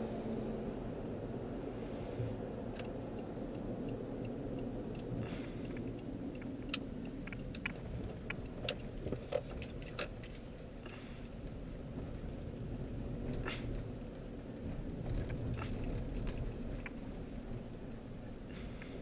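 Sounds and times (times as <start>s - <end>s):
car cabin road noise: 0.0s - 19.0s
light sharp clicks: 2.2s - 11.6s.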